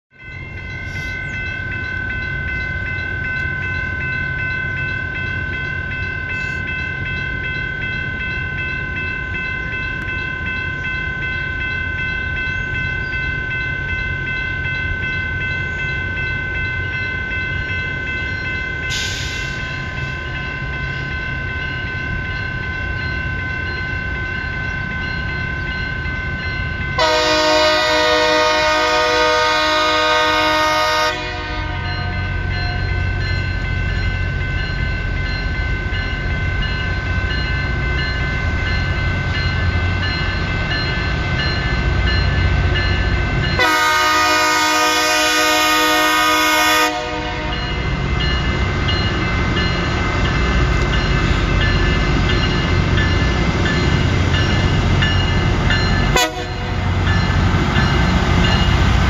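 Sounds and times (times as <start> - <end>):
railroad crossing bell ringing: 0.1 - 59.0
multi-tone train horn chord: 27.0 - 32.7, 43.6 - 47.8, 56.1 - 57.0.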